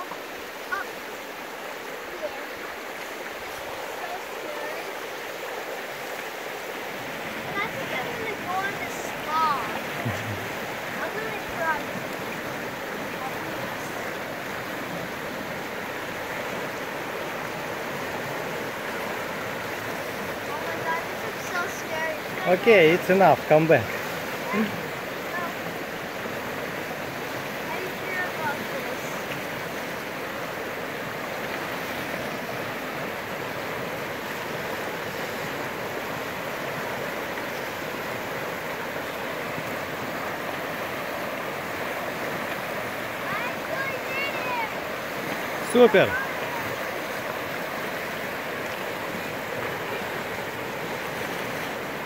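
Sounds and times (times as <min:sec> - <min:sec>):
river rushing over rapids: 0:00.0 - 0:52.0.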